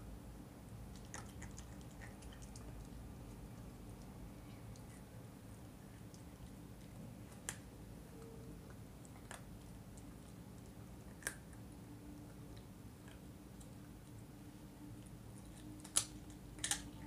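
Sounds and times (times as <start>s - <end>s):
teeth cracking on bone: 0.9s - 3.0s, 9.0s - 11.7s, 15.3s - 17.0s
dog chewing: 0.9s - 5.1s, 5.8s - 14.3s.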